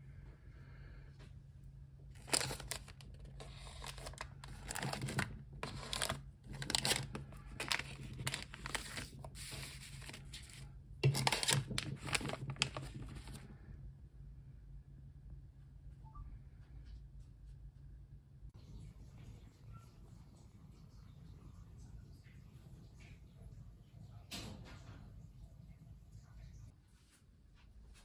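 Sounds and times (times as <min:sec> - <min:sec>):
foil sachets crinkling: 0:02.2 - 0:13.4.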